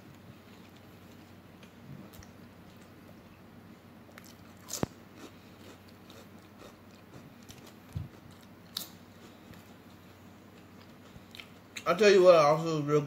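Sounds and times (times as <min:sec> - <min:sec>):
chewing potato chip: 0:04.1 - 0:11.9.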